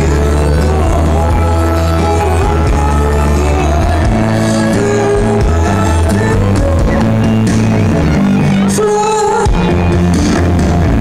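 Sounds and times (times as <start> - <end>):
live band playing instrumental: 0.0 - 11.0.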